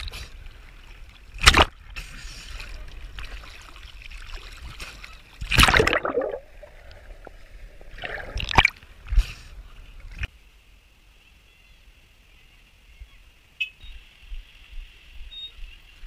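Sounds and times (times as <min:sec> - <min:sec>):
water splashing: 0:00.0 - 0:10.3.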